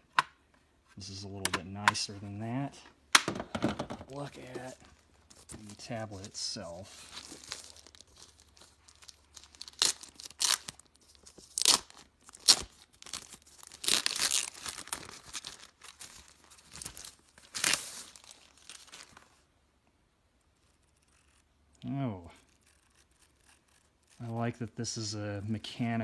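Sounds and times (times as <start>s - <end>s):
packaging wrap rustling: 4.1s - 19.4s.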